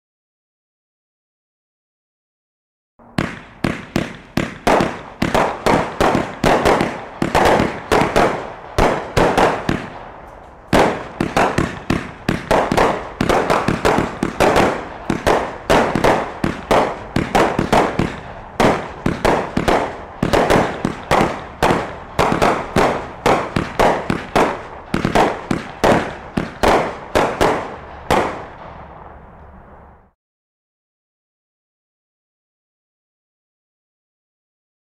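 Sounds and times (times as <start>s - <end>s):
firework cake sharp bangs: 3.0s - 30.2s.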